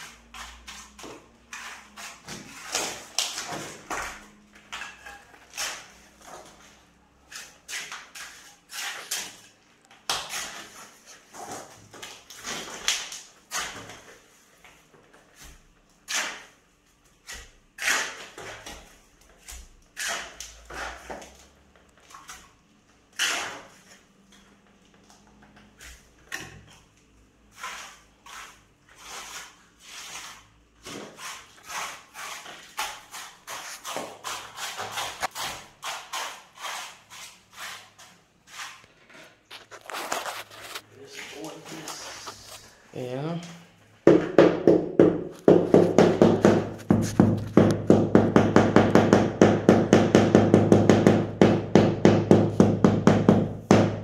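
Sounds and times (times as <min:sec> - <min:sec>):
trowel scraping mortar: 0:00.0 - 0:09.5, 0:10.1 - 0:14.2, 0:15.3 - 0:16.6, 0:17.2 - 0:21.5, 0:22.1 - 0:24.4, 0:27.5 - 0:42.7, 0:45.4 - 0:47.8
tiles knocking on mortar: 0:44.1 - 0:54.0.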